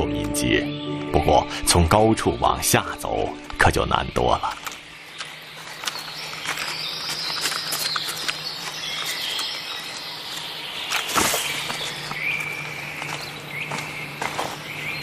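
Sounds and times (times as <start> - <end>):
high chirring forest ambience: 0.0 - 15.0
claws scratching on bark: 4.6 - 12.2
rustle: 4.7 - 13.3.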